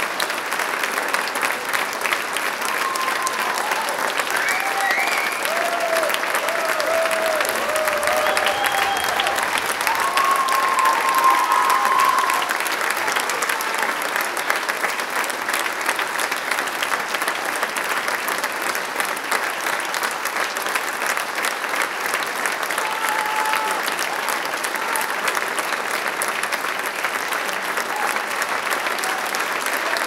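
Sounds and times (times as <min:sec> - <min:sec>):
audience applauding: 0:00.0 - 0:30.0
crowd calling out: 0:02.7 - 0:12.7.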